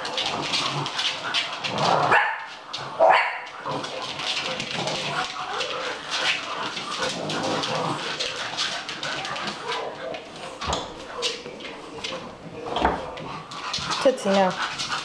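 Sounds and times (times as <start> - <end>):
puppies barking: 0.0 - 11.9
paws clicking on wooden floor: 0.0 - 15.0.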